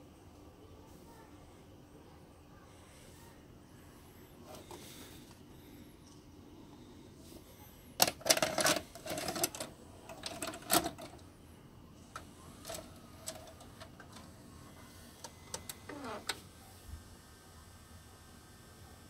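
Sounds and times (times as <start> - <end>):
clicks and clatter: 8.0 - 11.2.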